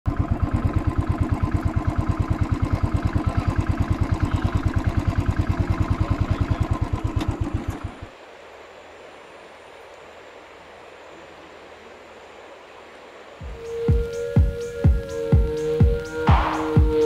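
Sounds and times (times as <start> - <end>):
engine idling with fast thumping: 0.1 - 8.1, 13.4 - 17.0.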